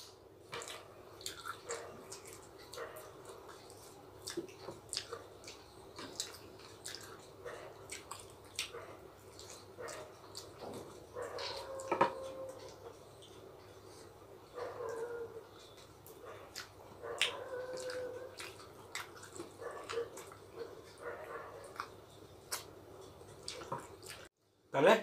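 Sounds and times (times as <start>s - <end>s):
wet chewing mouth clicks: 0.5s - 11.6s, 15.6s - 24.3s.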